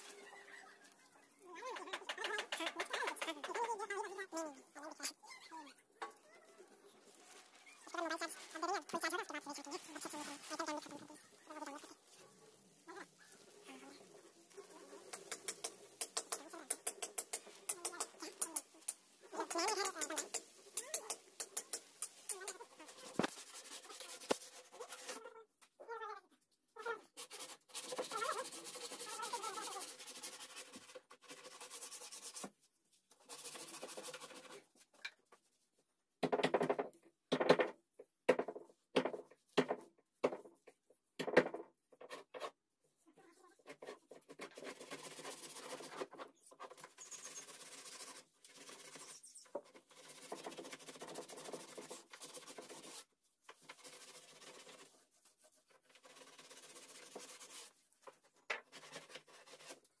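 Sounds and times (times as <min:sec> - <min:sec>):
polishing pad scratching on wood: 0:07.4 - 0:25.2, 0:27.2 - 0:32.5, 0:33.2 - 0:34.6, 0:44.5 - 0:46.1, 0:46.8 - 0:57.8.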